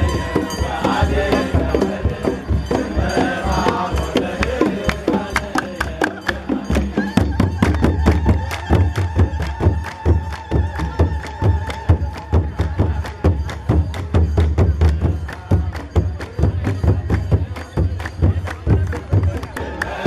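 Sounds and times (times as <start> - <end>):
crowd singing a hymn: 0.0 - 9.6, 19.3 - 20.0
drums beating: 0.0 - 20.0
hand clapping: 4.4 - 20.0.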